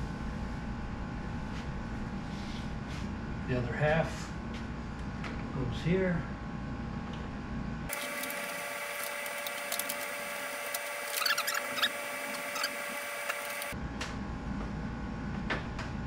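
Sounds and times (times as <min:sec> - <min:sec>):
steady hum: 0:00.0 - 0:16.0
plastic trim clicks and squeaks: 0:10.7 - 0:12.7.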